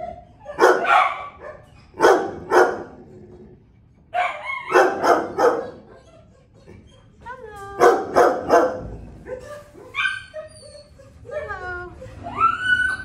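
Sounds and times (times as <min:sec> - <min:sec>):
dogs barking: 0:00.0 - 0:03.1, 0:04.2 - 0:06.0, 0:07.8 - 0:10.2.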